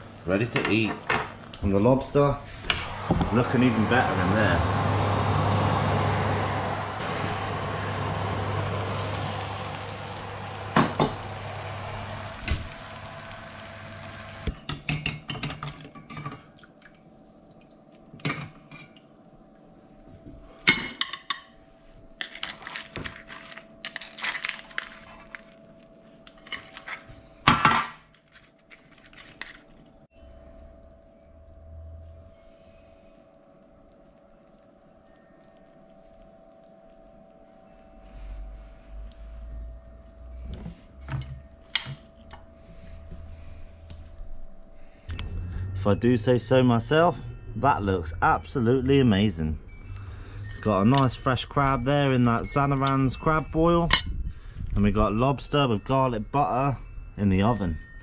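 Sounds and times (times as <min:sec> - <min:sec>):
oven fan humming: 0:00.0 - 0:15.6, 0:29.9 - 0:56.5.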